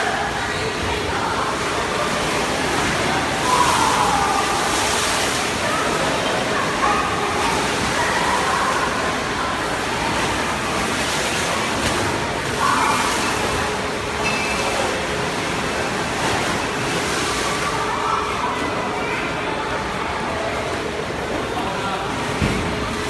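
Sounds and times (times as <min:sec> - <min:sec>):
pool water sloshing and splashing: 0:00.0 - 0:23.0.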